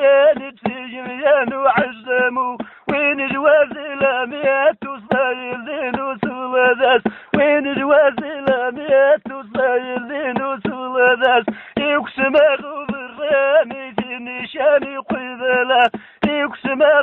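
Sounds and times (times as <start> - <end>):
man singing chant-like melody: 0.0 - 17.0.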